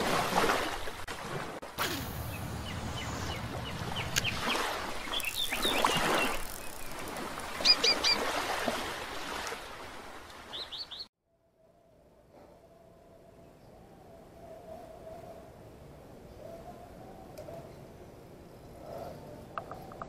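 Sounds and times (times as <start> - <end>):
small birds chirping: 2.0 - 8.2, 10.5 - 11.1.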